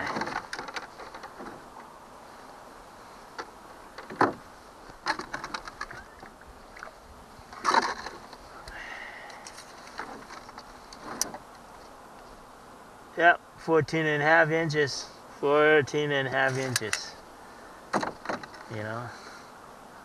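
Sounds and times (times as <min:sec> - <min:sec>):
clicks and scrapes on plastic boat floor: 0:09.5 - 0:11.9.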